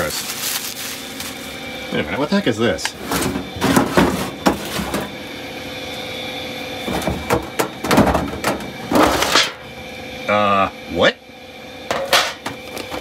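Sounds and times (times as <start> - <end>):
metal tin scraping and knocking: 11.9 - 12.6.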